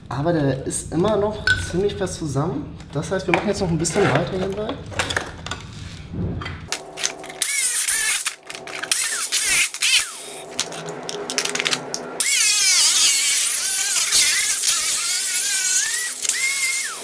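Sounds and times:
angle grinder cutting plastic: 0:06.7 - 0:17.0.

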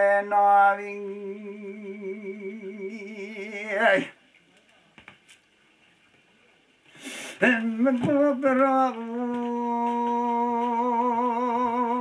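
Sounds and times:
man singing unaccompanied: 0:00.0 - 0:04.2, 0:07.4 - 0:12.0
breath: 0:06.9 - 0:07.4.

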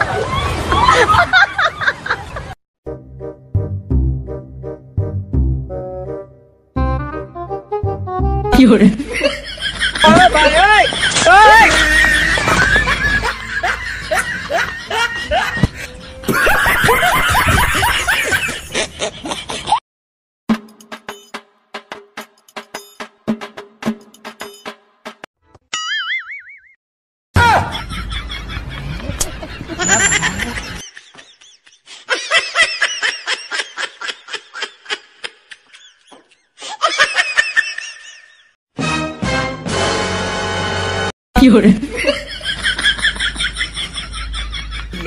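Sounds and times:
person laughing: 0:09.0 - 0:19.8, 0:28.6 - 0:38.4.

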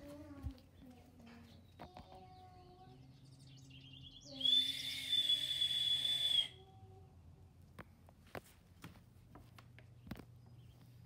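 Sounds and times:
high-pitched whistle blast: 0:04.3 - 0:06.6.

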